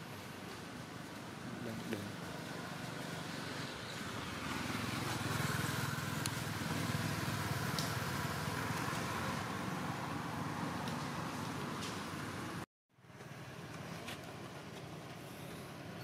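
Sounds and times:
vehicle engine running: 1.0 - 16.0.

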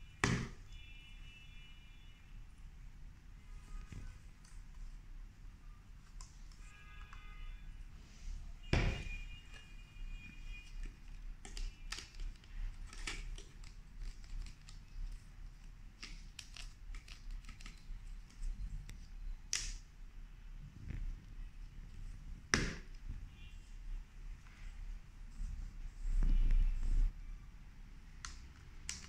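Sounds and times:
plastic parts clicking and knocking: 10.6 - 18.5, 28.2 - 29.0.

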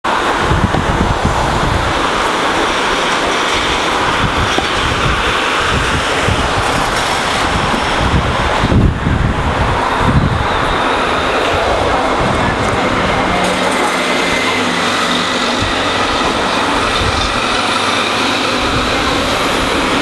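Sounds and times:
buses and cars driving past: 0.0 - 20.0
wind buffeting microphone: 0.1 - 20.0.

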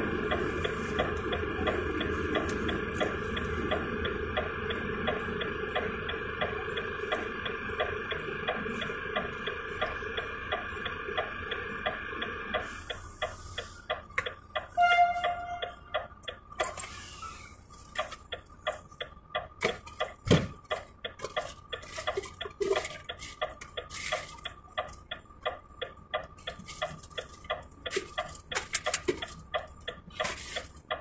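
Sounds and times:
fast mechanical ticking: 0.1 - 16.7, 17.9 - 31.0
faint steady high tone: 14.6 - 15.9.

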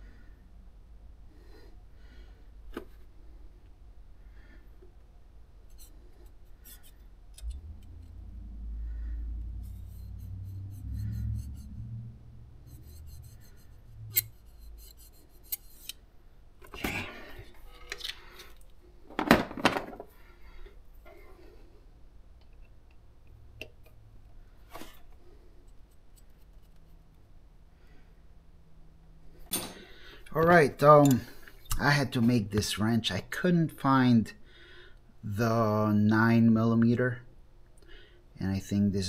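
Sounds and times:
wrench clicking and scraping on metal: 5.7 - 7.6, 12.7 - 16.0, 29.5 - 31.3
low rumble: 7.2 - 14.8.

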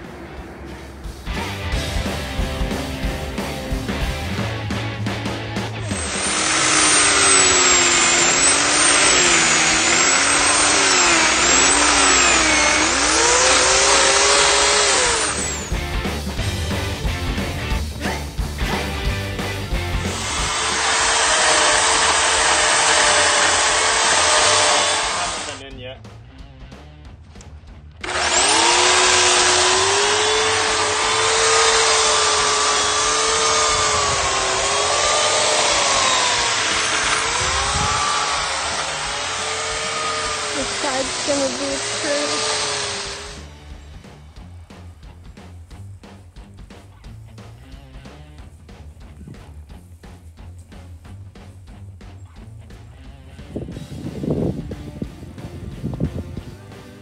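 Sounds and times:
chain rasping through wood: 5.8 - 15.7, 20.1 - 25.6, 28.0 - 43.4
electric chainsaw motor whine: 5.8 - 17.1, 18.7 - 25.6, 28.0 - 43.8.

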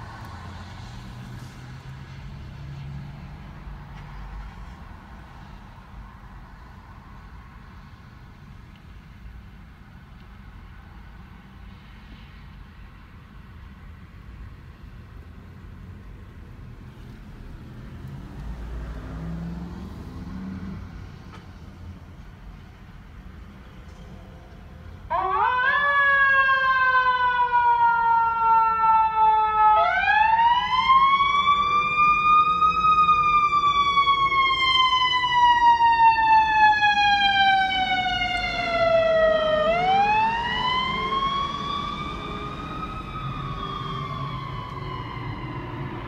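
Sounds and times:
electronic siren wailing: 25.1 - 46.0.

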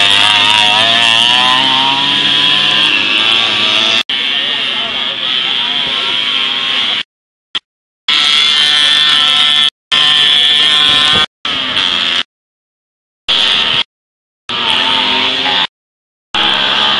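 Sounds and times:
high-pitched moped engine: 0.0 - 7.1, 8.1 - 12.3, 14.5 - 15.7, 16.4 - 16.9.

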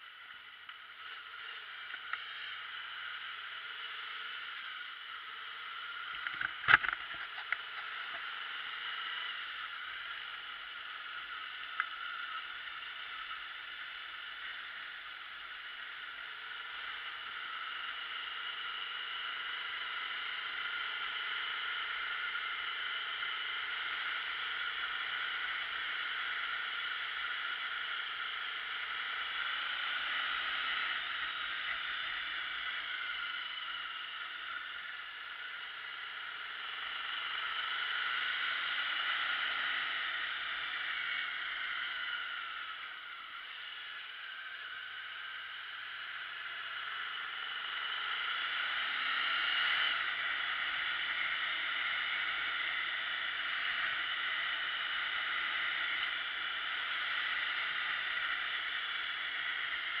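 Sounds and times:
motorbike engine running: 0.0 - 60.0.

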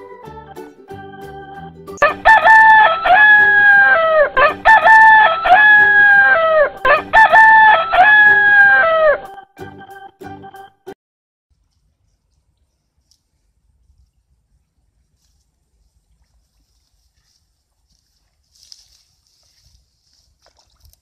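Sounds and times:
rooster crowing: 2.0 - 9.3.

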